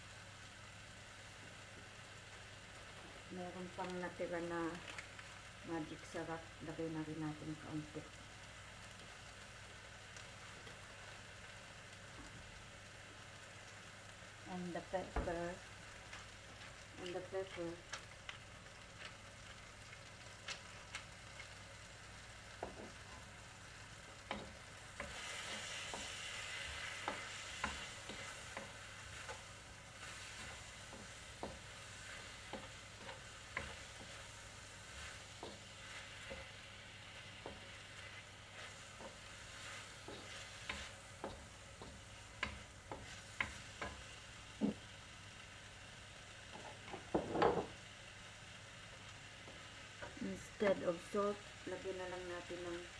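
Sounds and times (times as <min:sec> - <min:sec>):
meat sizzling in a wok: 0:00.0 - 0:52.9
wooden spoon knocking pan: 0:46.6 - 0:47.8.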